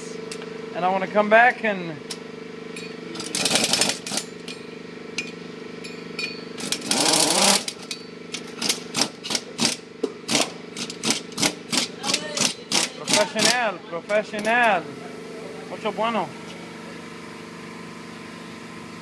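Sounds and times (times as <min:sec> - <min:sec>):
steady hum: 0:00.0 - 0:19.0
impact wrench rattling: 0:02.8 - 0:14.8.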